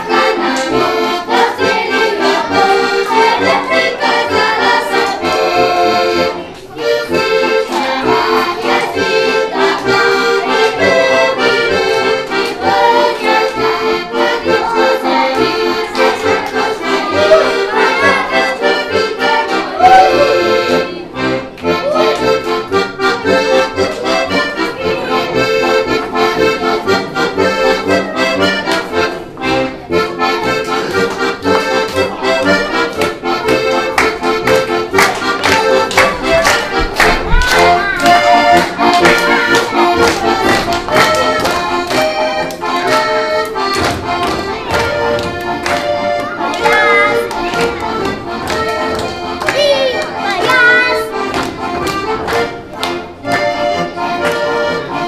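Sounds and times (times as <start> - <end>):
button accordion playing folk tune: 0.0 - 55.0
children's choir singing: 0.0 - 55.0.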